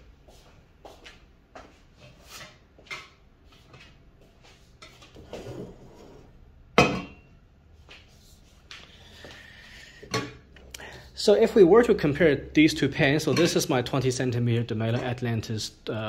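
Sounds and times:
saucepans knocking and clinking: 6.8 - 7.3, 13.2 - 13.7.

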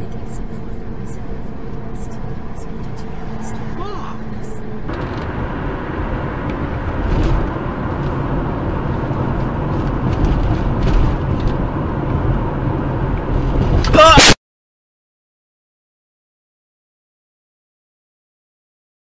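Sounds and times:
car road and engine noise: 0.0 - 14.4.

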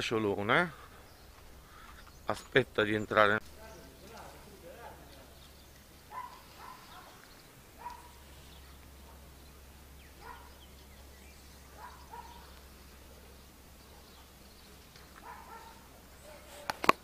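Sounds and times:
low steady hum: 0.0 - 17.0
faint animal calls: 0.5 - 17.0.

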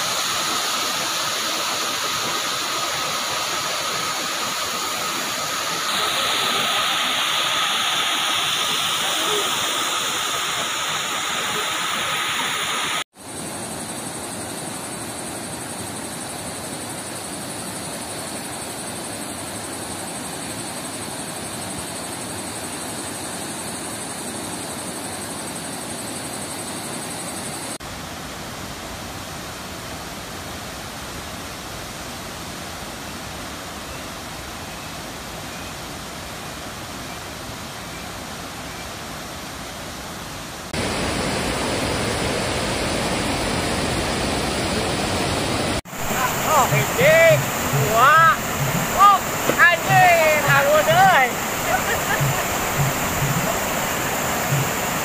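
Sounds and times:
waterfall rushing: 0.0 - 13.1, 40.2 - 55.0.

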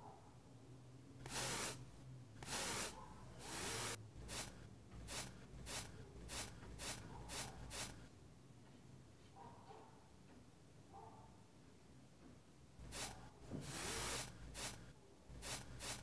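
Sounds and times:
paintbrush scrubbing across canvas: 1.2 - 8.1, 12.8 - 16.0.

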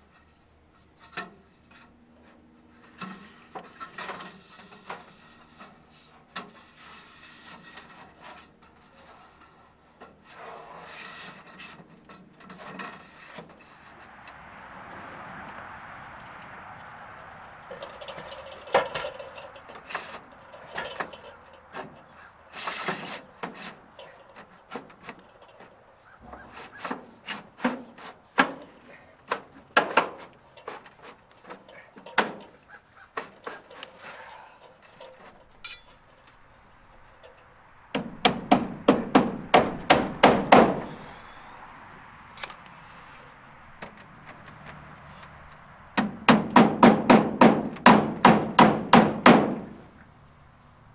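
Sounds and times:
wood scraping: 0.0 - 41.8
hammering on wood: 37.9 - 40.9, 46.0 - 49.8.

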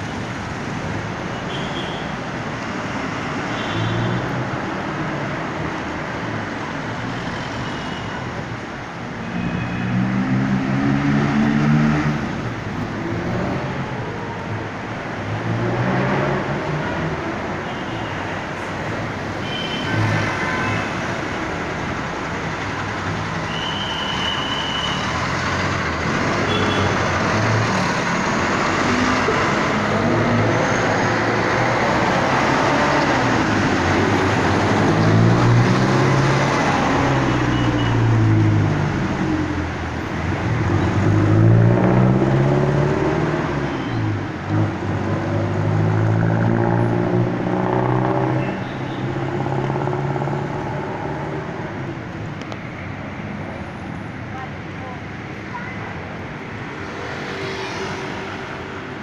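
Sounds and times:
vehicles pulling off and passing: 0.0 - 1.5, 8.3 - 59.0
bus engines running: 18.2 - 57.4.

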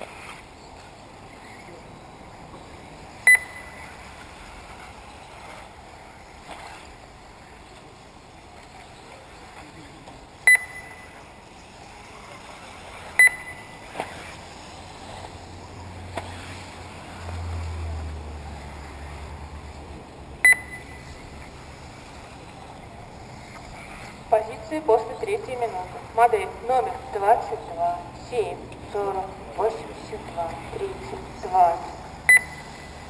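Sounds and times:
steady low background noise: 0.0 - 33.0
short electronic beeps: 3.2 - 3.9, 10.5 - 11.2, 13.2 - 13.8, 20.4 - 21.2, 32.3 - 33.0.

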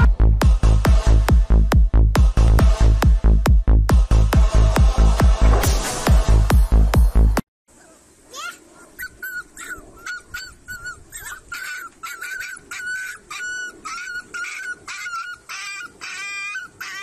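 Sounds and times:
puppies yelping and whining: 8.8 - 17.0.

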